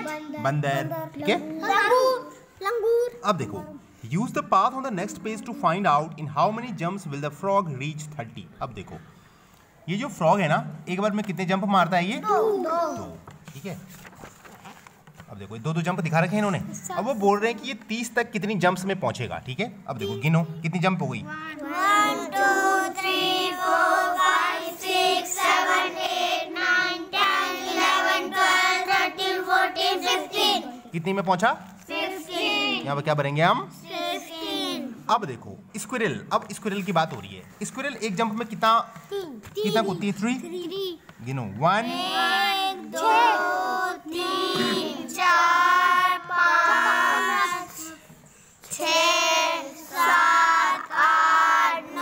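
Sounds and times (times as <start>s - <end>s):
children counting in chorus: 0.0s - 3.8s, 12.2s - 13.2s, 21.3s - 30.9s, 31.9s - 32.9s, 33.7s - 35.1s, 41.8s - 52.0s.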